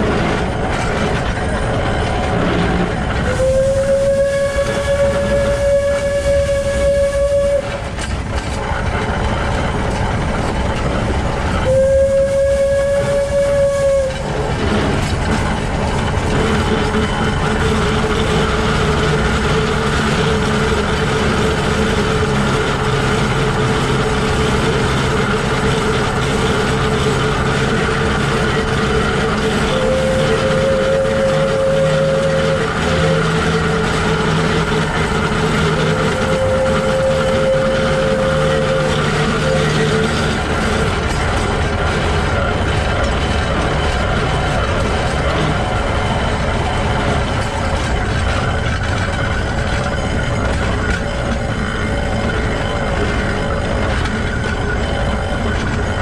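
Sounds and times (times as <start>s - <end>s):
steam locomotive gears clattering: 0.0s - 56.0s
steam whistle blasts: 3.2s - 8.0s, 11.6s - 14.4s, 27.0s - 40.8s.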